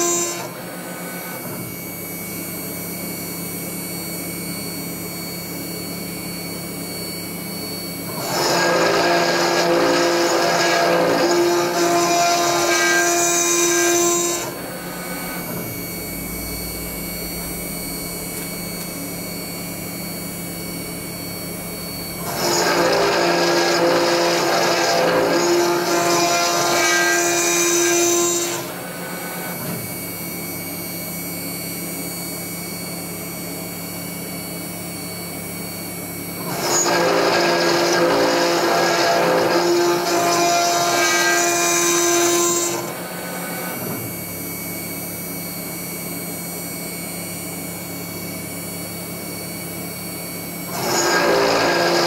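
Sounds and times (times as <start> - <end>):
spindle whine: 0.0 - 12.9, 13.6 - 27.2
cnc router cutting steel: 0.0 - 52.0.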